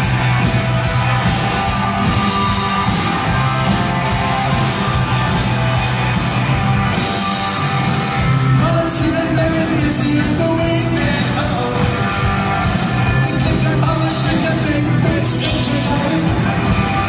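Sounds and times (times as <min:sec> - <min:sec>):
live rock band playing: 0:00.0 - 0:17.0
person singing: 0:08.4 - 0:12.3, 0:13.1 - 0:16.7.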